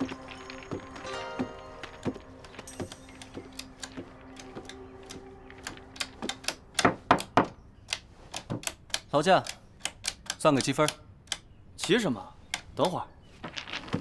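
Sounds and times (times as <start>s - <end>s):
low steady drone: 0.0s - 6.8s
sharp clicks: 2.9s - 13.0s.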